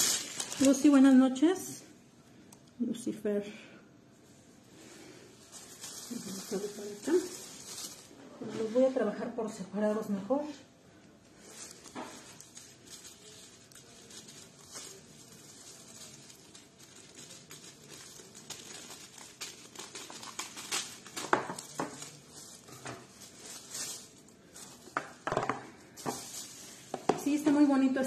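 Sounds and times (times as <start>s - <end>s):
plastic film crinkling: 0.0s - 1.4s, 5.0s - 8.2s, 11.3s - 27.9s.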